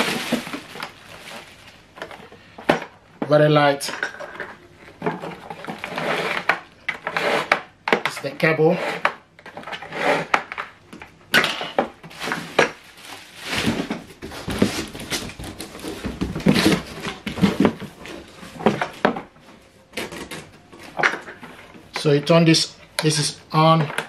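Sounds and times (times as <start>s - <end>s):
cardboard box and wrapping rustling: 0.0s - 2.4s, 12.1s - 19.6s.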